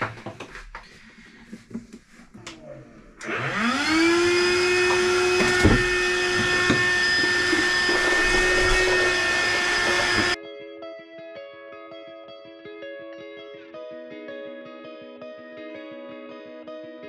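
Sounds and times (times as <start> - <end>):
shop vacuum motor whine: 3.2 - 10.4.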